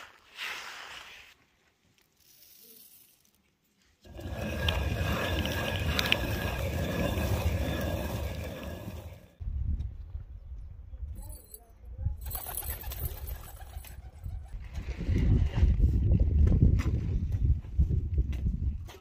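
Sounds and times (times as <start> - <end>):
grains rustling under fingers: 0.0 - 9.0
hand quern grinding grain: 0.0 - 9.4.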